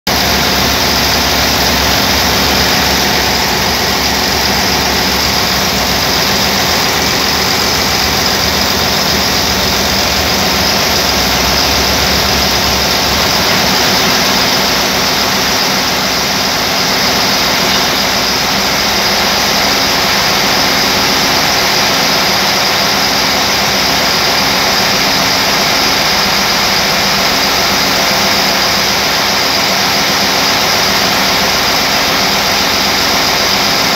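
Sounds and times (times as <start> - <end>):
marine diesel engine running: 0.1 - 33.9.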